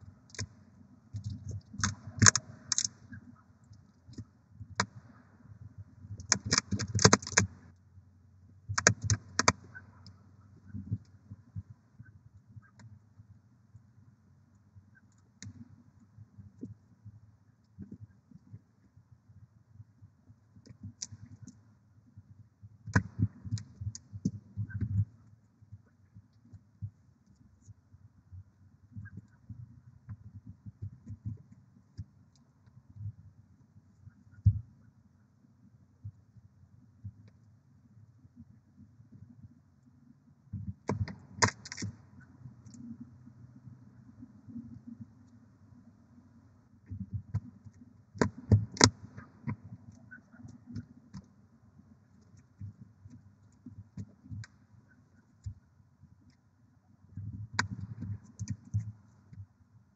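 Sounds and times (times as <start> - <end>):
low steady hum: 0.0 - 59.9
owl clicks and scratches in nest box: 0.2 - 5.2, 6.2 - 7.6, 8.7 - 11.2, 40.7 - 43.1, 47.0 - 51.4, 57.5 - 59.4
faint clicks: 0.3 - 5.2.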